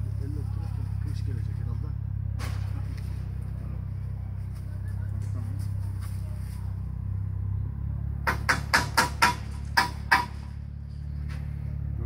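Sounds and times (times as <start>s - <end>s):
steady low rumble: 0.0s - 8.3s.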